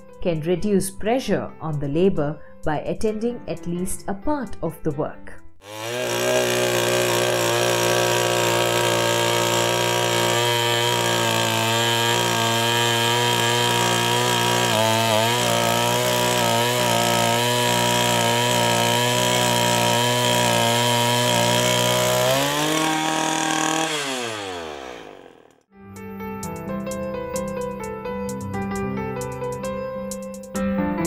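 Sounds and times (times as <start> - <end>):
petrol engine running at high revs: 5.6 - 25.4.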